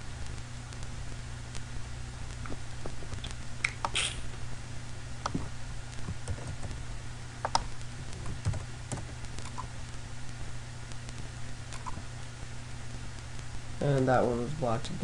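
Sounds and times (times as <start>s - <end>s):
keyboard and mouse clicks: 5.2s - 6.8s, 7.4s - 9.7s, 11.7s - 12.0s.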